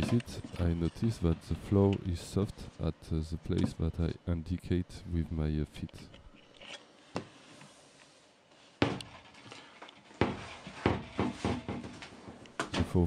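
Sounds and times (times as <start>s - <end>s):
footsteps on wooden floor: 10.1s - 12.4s.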